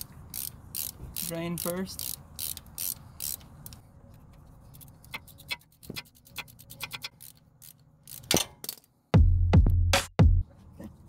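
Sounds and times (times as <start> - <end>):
ratchet wrench clicking: 0.0 - 3.8, 4.7 - 8.9.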